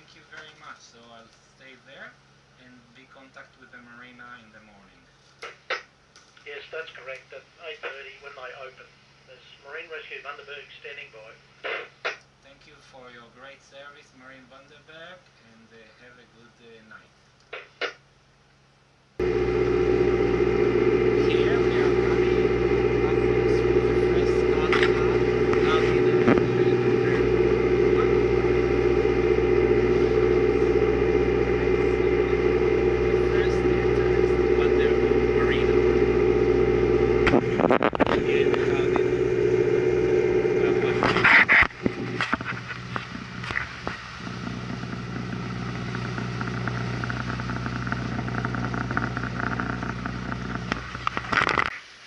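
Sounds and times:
boat engine humming: 0:19.2 - 0:51.6.

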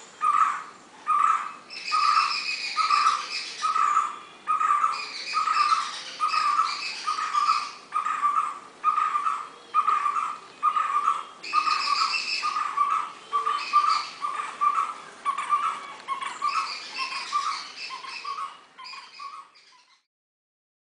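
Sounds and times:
bird calling repeated notes: 0:00.2 - 0:20.1.

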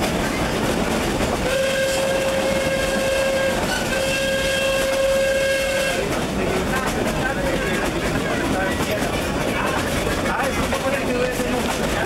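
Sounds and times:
train carriage running on rails: 0:00.0 - 0:12.0
steam whistle blasts: 0:01.4 - 0:06.1.

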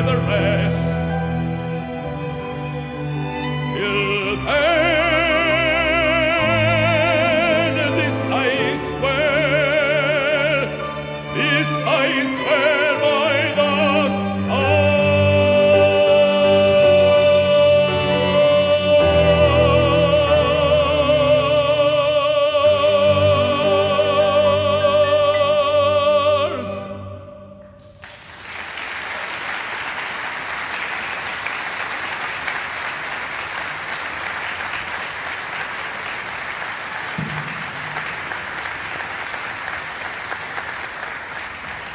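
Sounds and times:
man singing with vibrato: 0:00.0 - 0:01.4, 0:03.5 - 0:27.9
audience applause: 0:28.0 - 0:41.9.

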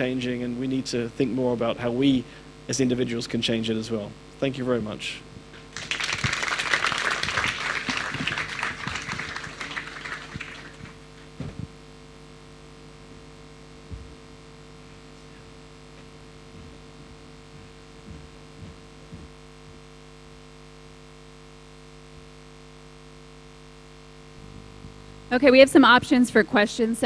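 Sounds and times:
electrical hum: 0:00.0 - 0:27.0
audience applauding: 0:05.7 - 0:11.1.

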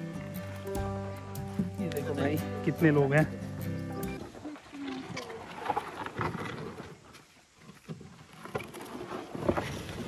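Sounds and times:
canoe hull scraping on gravel: 0:04.2 - 0:10.0.

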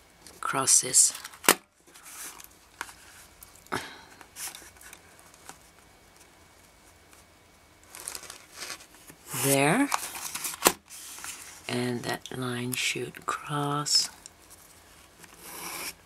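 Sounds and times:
paper rustling: 0:07.8 - 0:11.7.

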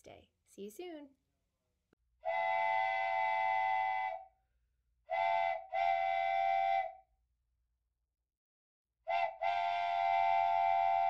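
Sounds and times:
steam train whistle blasts: 0:02.2 - 0:04.3, 0:05.1 - 0:07.0, 0:09.1 - 0:11.0.

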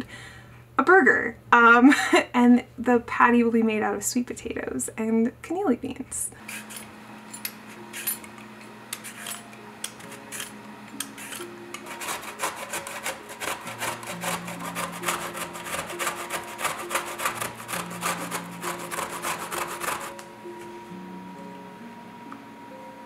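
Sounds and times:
vegetable peeler scraping: 0:06.4 - 0:06.9, 0:08.9 - 0:20.2
grating on metal box grater: 0:11.1 - 0:20.2.

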